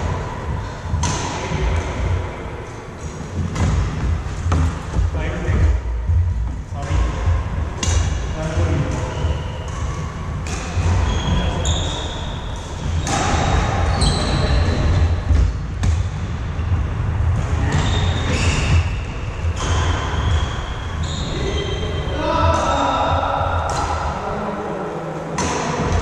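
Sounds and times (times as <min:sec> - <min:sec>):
steady low rumble: 0:00.0 - 0:11.1, 0:12.4 - 0:21.0
racket striking shuttlecock: 0:00.9 - 0:01.9, 0:07.7 - 0:08.2, 0:08.9 - 0:11.1
shoes squeaking on floor: 0:08.6 - 0:15.6, 0:17.6 - 0:22.2.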